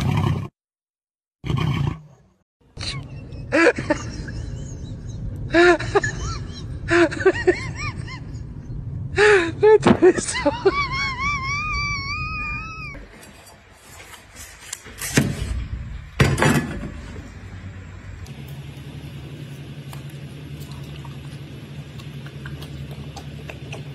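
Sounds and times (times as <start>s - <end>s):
steady low hum: 15.3s - 23.9s.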